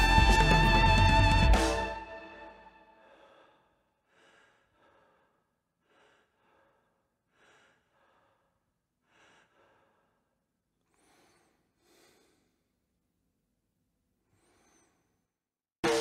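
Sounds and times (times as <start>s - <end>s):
faint breathy puffs: 10.9s - 12.7s, 14.3s - 15.2s.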